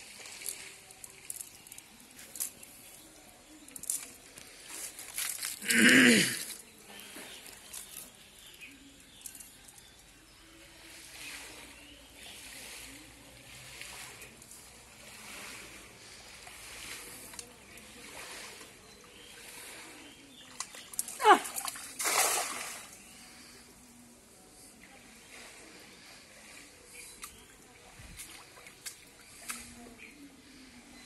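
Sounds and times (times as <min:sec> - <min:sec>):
net splashing into pond: 0:10.8 - 0:19.9, 0:20.5 - 0:23.5.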